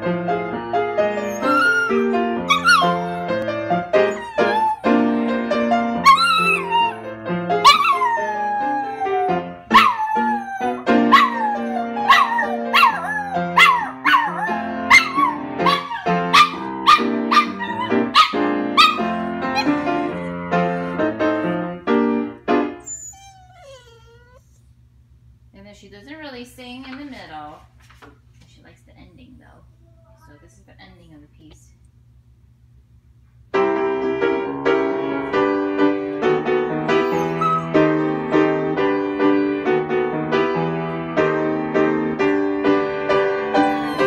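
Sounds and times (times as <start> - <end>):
piano chords: 0.0 - 23.2, 33.6 - 44.0
dog howling: 1.2 - 3.4, 4.1 - 5.0, 6.0 - 7.1, 7.7 - 21.0, 22.8 - 24.5, 37.0 - 37.7, 43.6 - 44.0.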